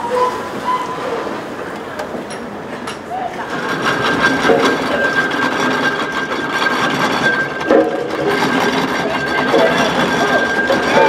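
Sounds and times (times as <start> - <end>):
steam roller mechanical clatter: 0.0 - 11.0.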